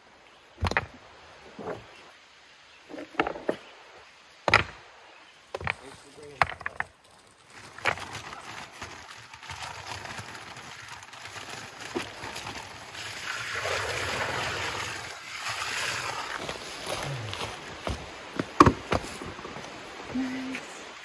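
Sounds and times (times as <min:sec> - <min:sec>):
loose fill pouring: 0:09.4 - 0:16.8.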